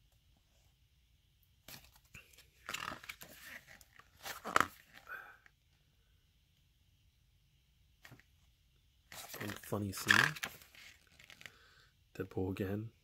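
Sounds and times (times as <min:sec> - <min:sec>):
paper pages being turned: 0:01.7 - 0:05.0, 0:09.1 - 0:11.6.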